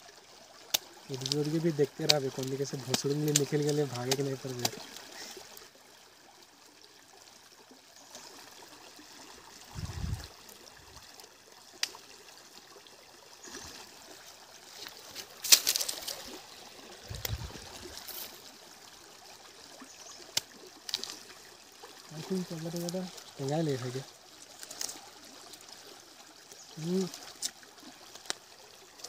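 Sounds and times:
stream trickling: 0.0 - 29.0
dull low bumps: 9.7 - 10.3, 17.0 - 17.9.

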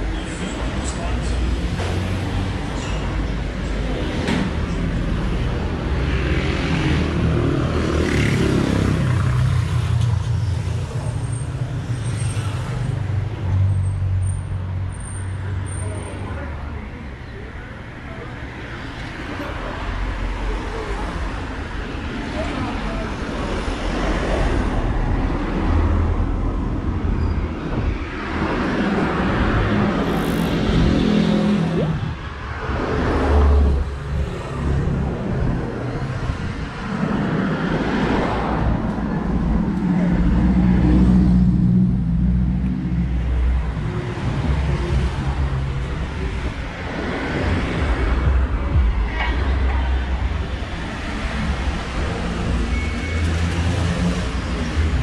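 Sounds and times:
vehicles passing by: 0.0 - 55.0
deep engine rumble: 38.5 - 51.9.

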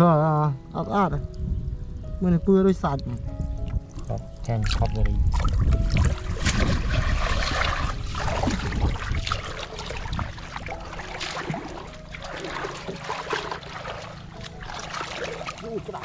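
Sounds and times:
water splashing and trickling: 2.3 - 16.0
soft steady water rush: 7.0 - 16.0.

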